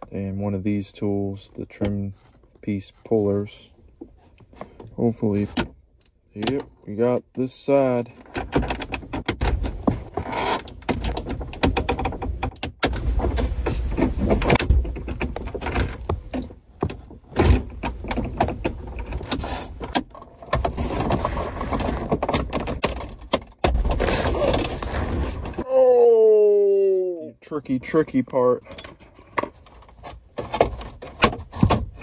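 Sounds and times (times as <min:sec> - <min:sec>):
plastic trim clicking and creaking: 0:08.2 - 0:24.8.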